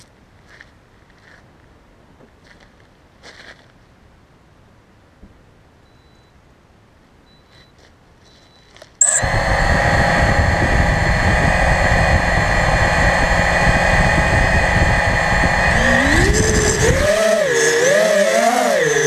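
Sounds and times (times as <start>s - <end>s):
quadcopter motors and propellers spinning: 9.0s - 19.0s.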